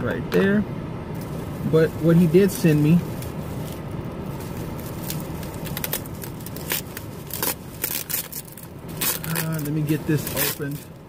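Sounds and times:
low hum: 0.0s - 11.0s
packaging crackling and rustling: 3.0s - 11.0s.

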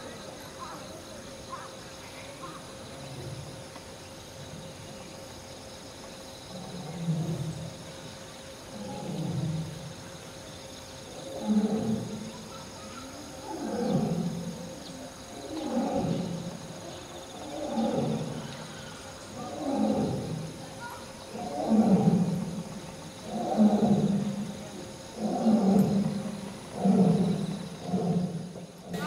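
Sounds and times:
lion roaring: 8.7s - 9.9s, 11.2s - 12.3s, 13.3s - 14.7s, 15.4s - 20.6s, 21.3s - 29.0s.

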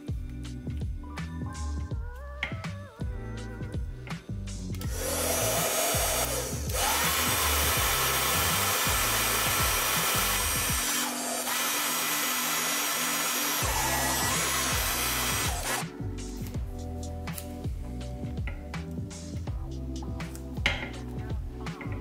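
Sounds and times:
background music: 0.0s - 22.0s
heat gun blowing hot air: 4.8s - 15.9s.

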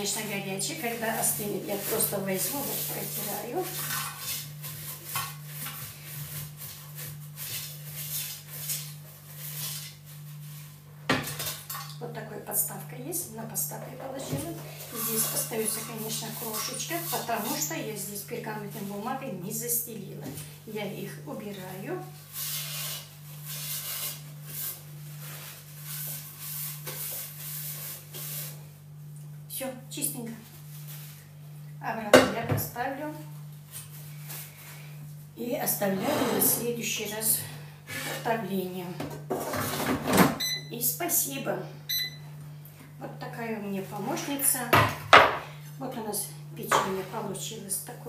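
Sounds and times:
paper towel rubbing: 0.0s - 10.8s, 14.8s - 17.8s, 21.7s - 28.6s
cloth scrubbing metal basket: 0.0s - 10.9s, 14.0s - 20.2s.

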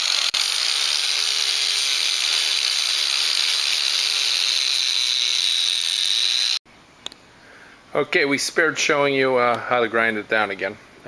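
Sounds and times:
power grinder whining: 0.0s - 6.6s.

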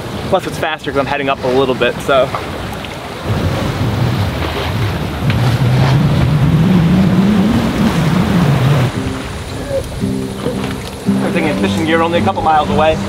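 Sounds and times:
water rushing along hull: 0.0s - 13.0s
wind buffeting microphone: 0.0s - 13.0s.

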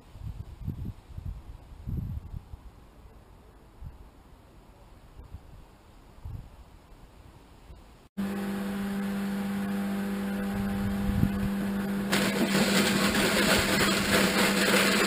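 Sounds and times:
electric mill motor hum: 8.2s - 15.0s
rough grinding of apples: 10.5s - 15.0s.

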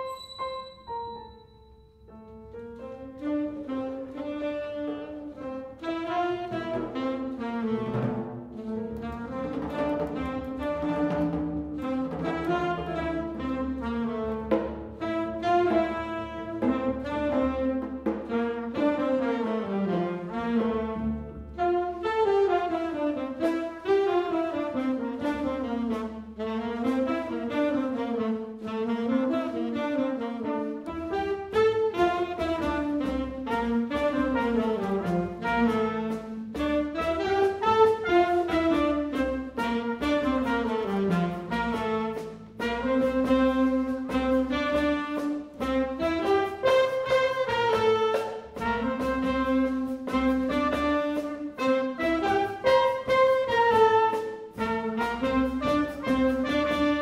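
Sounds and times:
piano: 0.0s - 57.0s
saxophones: 0.0s - 57.0s
trumpet: 0.0s - 57.0s
double bass: 2.2s - 57.0s
drums: 3.1s - 57.0s.

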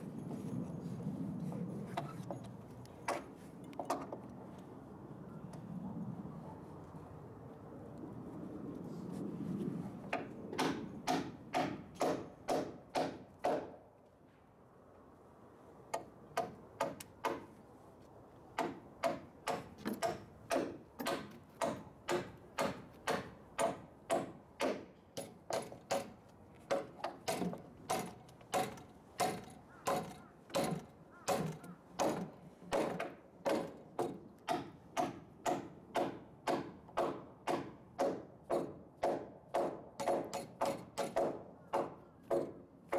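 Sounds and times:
hammer driving nails into wood: 10.6s - 13.8s, 18.6s - 42.6s.

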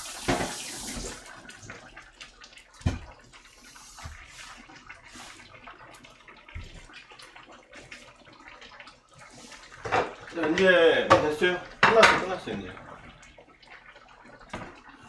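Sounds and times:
water splashing in sink: 0.0s - 15.0s.

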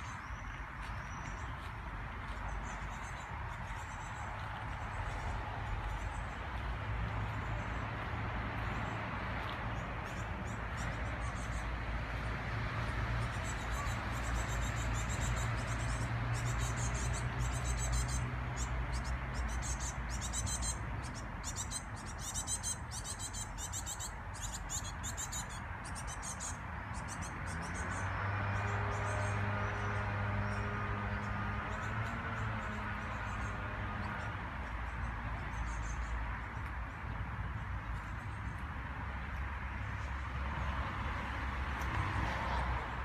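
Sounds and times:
small birds chirping: 0.0s - 8.0s, 13.2s - 38.9s.

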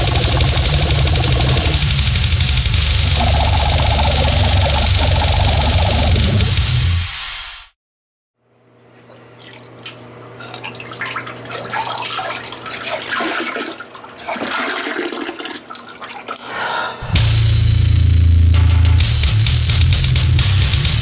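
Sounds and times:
steady low hum: 0.0s - 6.9s
goregrind music with drums and guitar: 0.0s - 7.7s, 17.0s - 21.0s.

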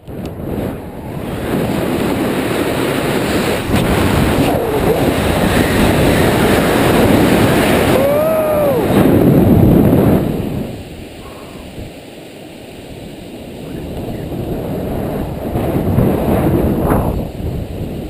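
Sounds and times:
wind rushing over microphone: 0.0s - 18.0s
person yelling: 7.9s - 9.0s.

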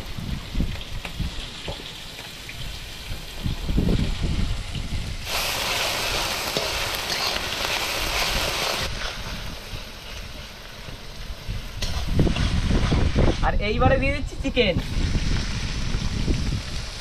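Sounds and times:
vegetables sizzling in hot oil: 0.0s - 13.8s, 14.4s - 17.0s
metal spatula stirring: 6.5s - 7.6s.

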